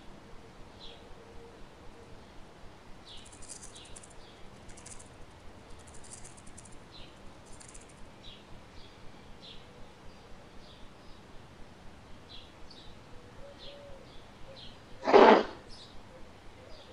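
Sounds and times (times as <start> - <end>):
dragonfly wings buzzing: 3.1 - 8.0, 15.0 - 15.6.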